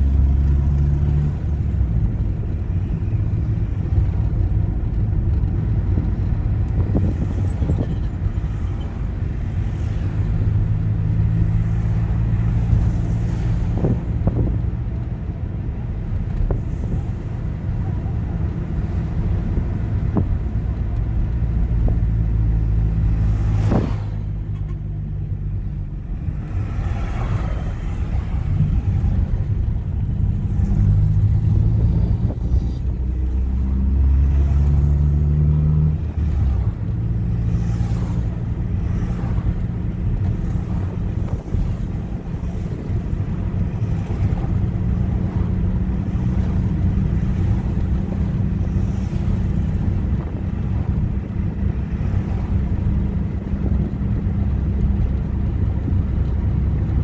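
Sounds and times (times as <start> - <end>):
car engine while driving: 0.0 - 57.0
road noise: 0.0 - 57.0
wind on microphone: 1.4 - 15.0, 26.1 - 33.8, 38.1 - 57.0.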